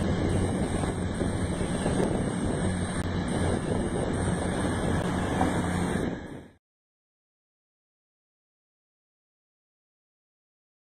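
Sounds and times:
diesel train passing: 0.0s - 6.5s
wind on microphone: 0.0s - 6.6s.

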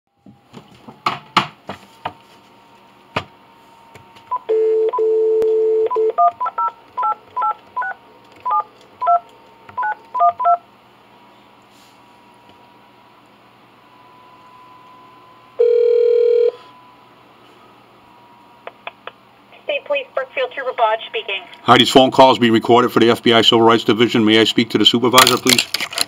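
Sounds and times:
keypad beeps: 4.3s - 9.2s
dial tone: 4.4s - 6.4s, 15.6s - 16.9s.

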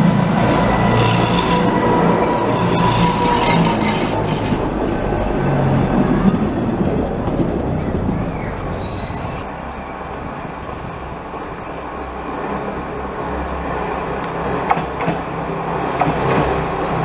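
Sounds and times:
railcar wheels rattling on rack track: 0.0s - 9.5s
high wheel squeal: 0.5s - 4.8s, 8.2s - 9.5s.

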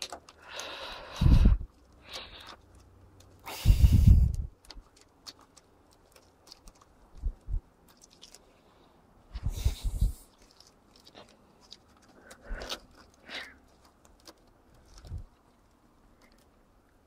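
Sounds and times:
handling rustling: 4.1s - 17.0s.

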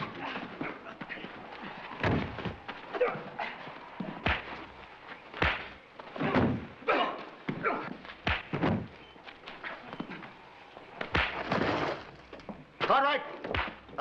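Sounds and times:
men grunting: 0.0s - 2.0s, 2.9s - 4.1s, 6.2s - 8.0s
punch thuds: 4.2s - 4.6s, 5.4s - 6.7s, 7.6s - 8.9s.

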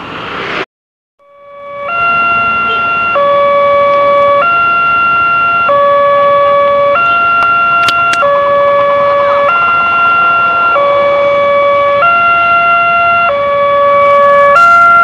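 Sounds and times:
two-tone crossing alarm: 1.2s - 15.0s.

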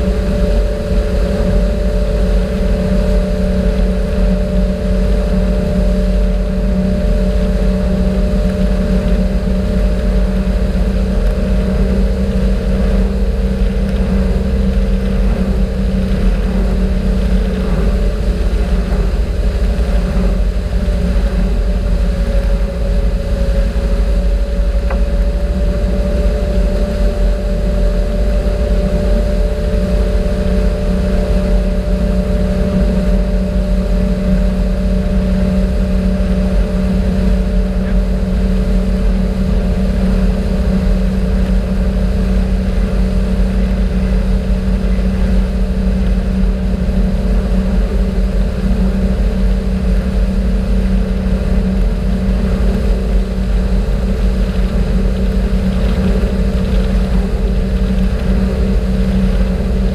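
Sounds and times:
motorboat engine droning: 0.0s - 59.9s
wake water rushing: 0.0s - 59.9s.

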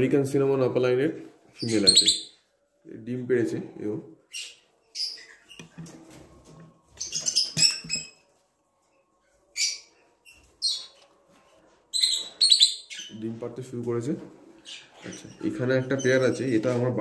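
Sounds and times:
lovebirds chirping: 1.6s - 2.5s, 4.3s - 5.8s, 6.9s - 8.2s, 8.8s - 11.1s, 11.9s - 13.3s, 14.6s - 16.6s.

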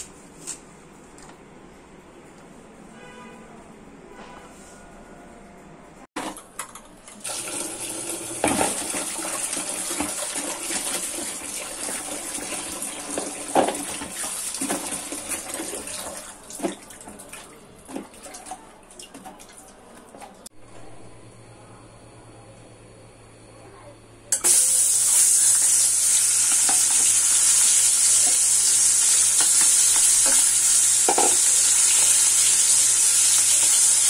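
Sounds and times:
tap water running into pot: 7.1s - 19.6s, 24.4s - 34.0s.

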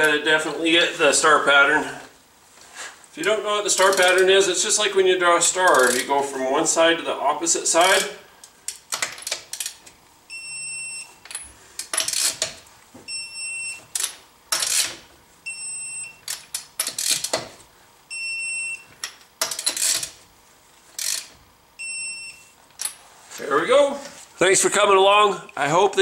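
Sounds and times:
torque wrench ratchet clicking: 8.7s - 9.8s, 19.0s - 20.2s, 21.0s - 21.4s.

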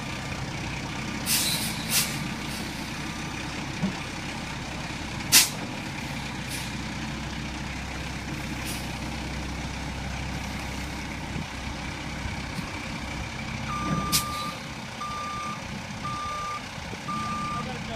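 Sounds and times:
diesel truck engine running: 0.0s - 17.9s
air brake hisses: 1.3s - 2.8s, 5.3s - 5.6s
backup alarm beeping: 13.7s - 17.7s.

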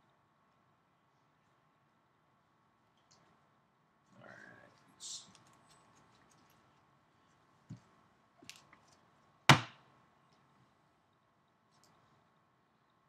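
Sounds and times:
sharp loud knock: 9.5s - 9.8s.

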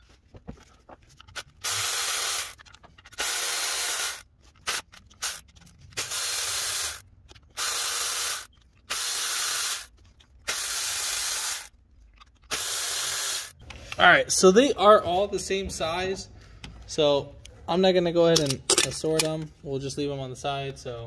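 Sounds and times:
cordless power tool whirring: 1.6s - 2.6s, 3.2s - 5.4s, 6.0s - 7.0s, 7.6s - 9.9s, 12.5s - 13.5s.

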